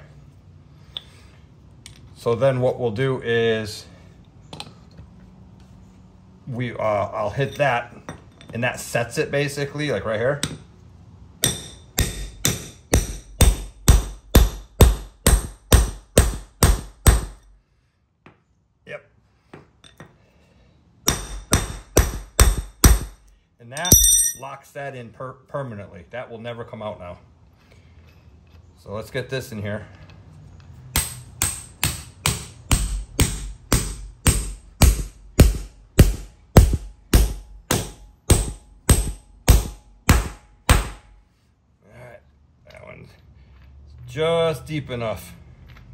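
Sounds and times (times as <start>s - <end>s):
hammer clanking on steel rod: 23.8s - 24.4s.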